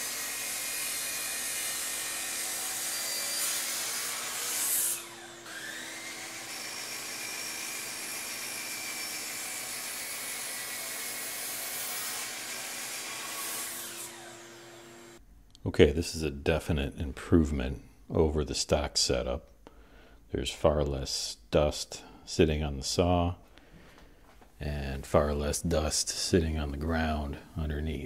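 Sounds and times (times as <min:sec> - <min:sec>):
miter saw cutting wood: 0:00.0 - 0:15.2.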